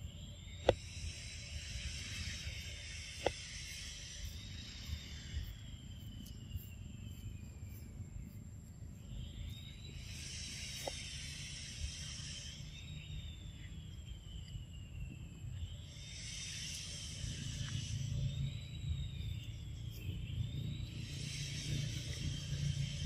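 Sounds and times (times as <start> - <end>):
insects droning: 0.0 - 23.0
low outdoor rumble: 0.0 - 23.0.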